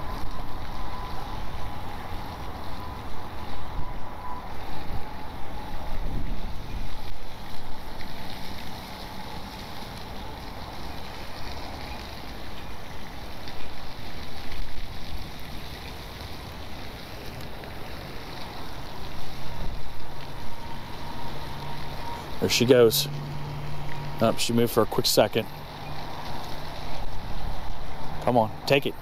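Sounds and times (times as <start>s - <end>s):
gusty wind buffeting microphone: 0.0s - 8.3s, 17.6s - 22.4s, 25.6s - 28.2s.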